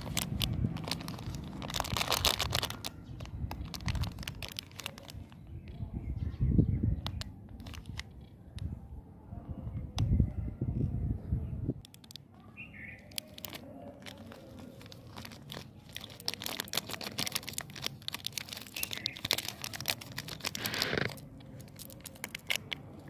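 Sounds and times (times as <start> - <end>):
plastic wrapper crinkling and tearing: 0.0 - 5.8, 7.0 - 8.3, 11.8 - 23.0.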